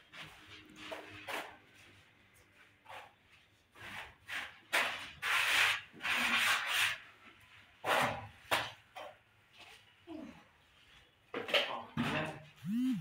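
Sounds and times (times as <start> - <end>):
trowel scraping plaster on wall: 2.8 - 8.5.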